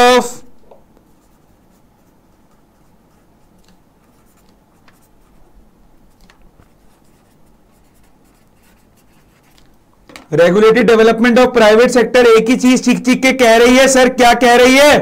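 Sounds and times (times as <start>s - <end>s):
pen scratching on paper: 1.1s - 5.5s, 6.1s - 9.7s
pen ticks on paper: 3.1s - 5.1s.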